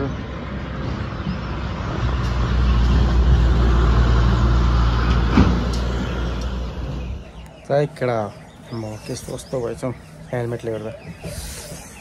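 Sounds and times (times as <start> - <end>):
large vehicle engine passing: 0.0 - 7.3.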